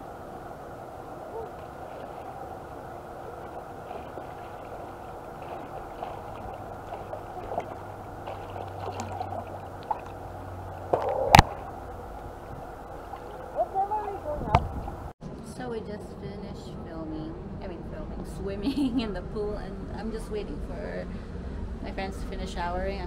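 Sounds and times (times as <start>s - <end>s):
muffled water sloshing and gurgling: 0.0s - 15.1s
water splash: 1.3s - 15.1s.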